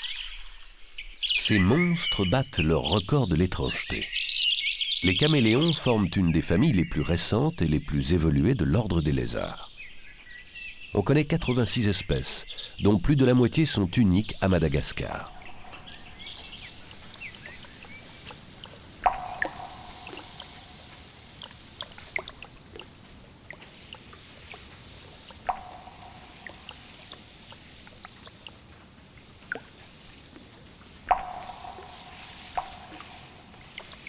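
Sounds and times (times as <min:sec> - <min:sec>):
drops plinking into water: 0:15.1 - 0:29.8, 0:31.0 - 0:34.0
small water drops dripping: 0:15.1 - 0:34.0.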